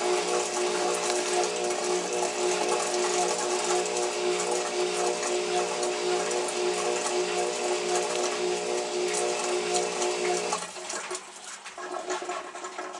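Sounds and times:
washing machine running: 0:00.0 - 0:12.9.

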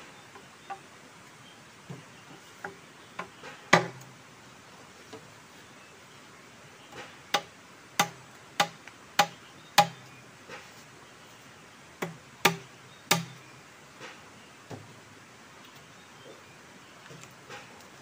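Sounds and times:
machete chopping into bamboo: 0:07.4 - 0:10.6, 0:12.0 - 0:13.4.

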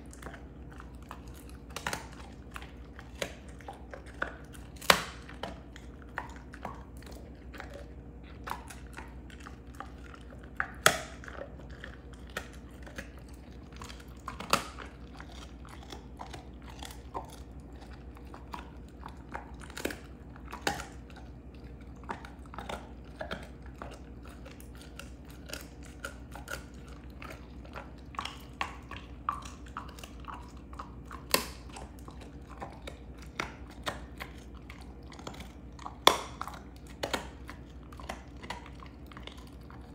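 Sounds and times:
dog gnawing on bone: 0:00.0 - 0:39.9
bone snapping: 0:01.4 - 0:06.8, 0:10.6 - 0:11.2, 0:13.9 - 0:18.2, 0:31.2 - 0:32.0, 0:35.2 - 0:38.7.

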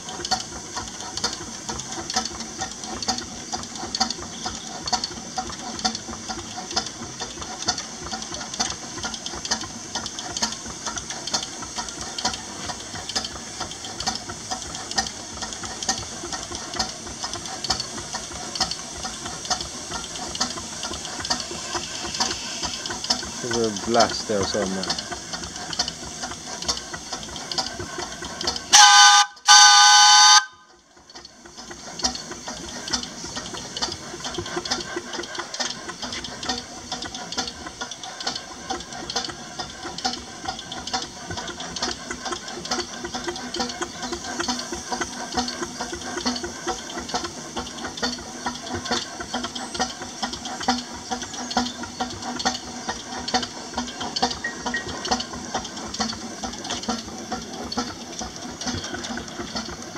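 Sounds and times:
hiss of steam: 0:00.0 - 0:30.2, 0:31.3 - 0:59.9
steam engine exhaust beat: 0:00.0 - 0:59.9
steam whistle blasts: 0:28.7 - 0:30.7.

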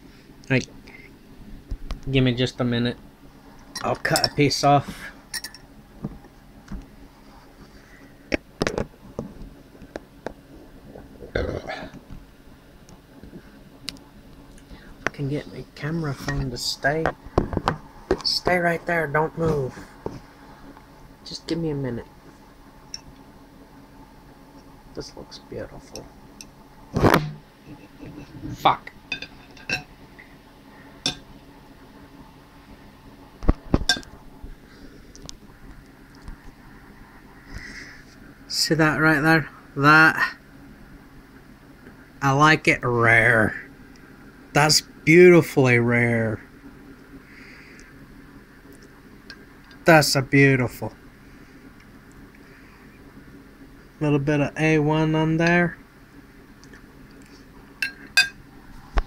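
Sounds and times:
knife and fork clinking on plate: 0:57.8 - 0:58.4.

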